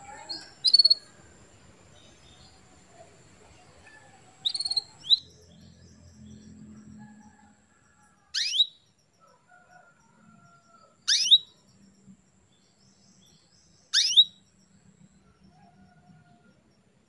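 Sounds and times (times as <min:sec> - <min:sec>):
canary chirping: 0:00.0 - 0:06.6, 0:08.3 - 0:08.9, 0:11.1 - 0:11.6, 0:13.2 - 0:14.5.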